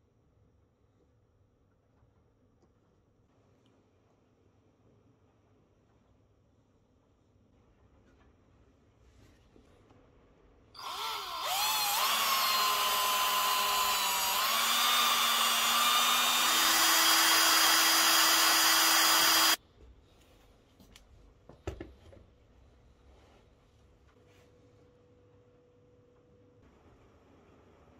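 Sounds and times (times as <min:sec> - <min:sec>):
power drill motor whine: 0:10.8 - 0:19.6.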